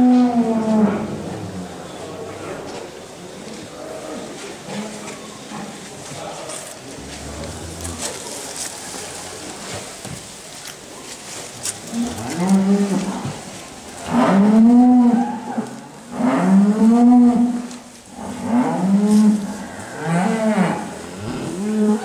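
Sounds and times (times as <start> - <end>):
cattle mooing: 18.2 - 22.0.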